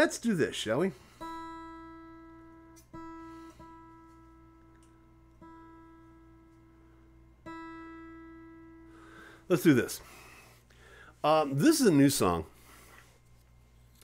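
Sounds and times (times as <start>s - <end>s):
acoustic guitar string plucked: 1.2s - 9.4s.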